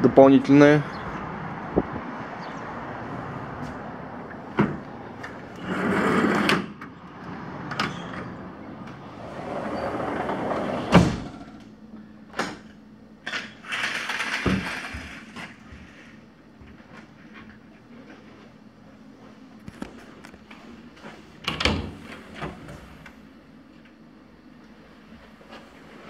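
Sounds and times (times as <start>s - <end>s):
sliding door rolling in track: 3.6s - 11.6s, 13.4s - 15.6s.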